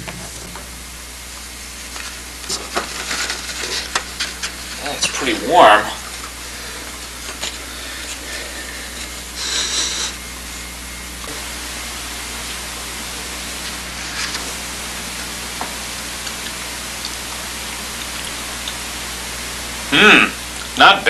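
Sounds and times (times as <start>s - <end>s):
videotape hiss: 0.0s - 21.0s
paper rustling: 1.8s - 4.8s, 14.0s - 14.6s.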